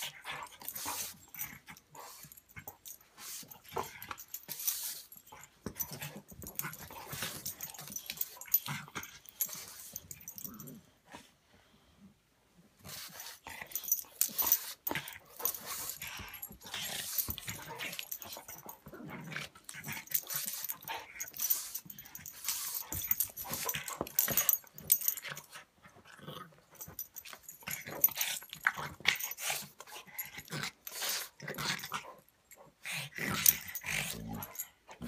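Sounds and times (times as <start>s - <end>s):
dogs growling: 32.8s - 35.0s.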